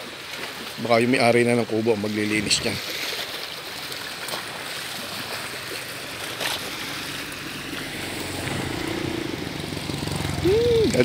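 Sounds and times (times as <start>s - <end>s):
lake water lapping at shore: 0.0s - 11.0s.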